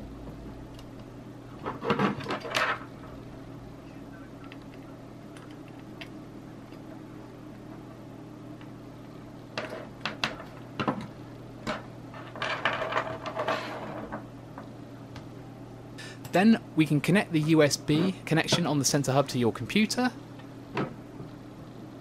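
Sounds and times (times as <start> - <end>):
steady low hum: 0.0 - 22.0
clicks and rustles of cables: 4.4 - 7.0.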